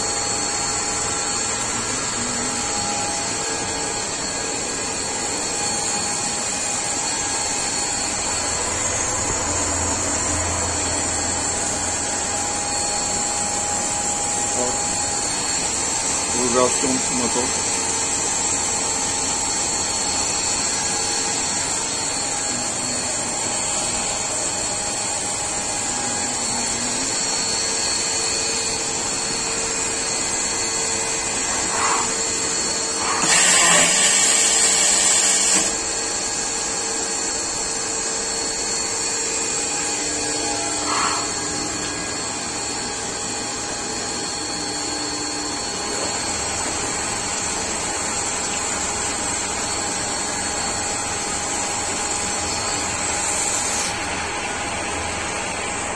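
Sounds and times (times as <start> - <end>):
constant machine tones: 0.0 - 55.9
lathe machine drone: 0.0 - 55.9
loud hiss: 33.0 - 35.7.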